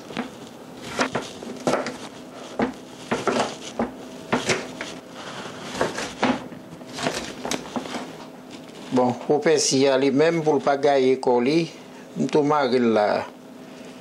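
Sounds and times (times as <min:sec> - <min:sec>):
knife chopping on plastic board: 0:00.2 - 0:05.0, 0:05.7 - 0:07.9.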